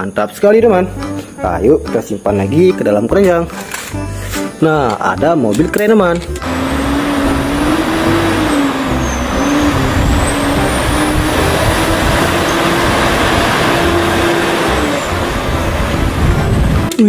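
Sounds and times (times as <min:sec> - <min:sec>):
diesel engine running: 0:06.2 - 0:17.0
road and tyre noise: 0:06.2 - 0:17.0.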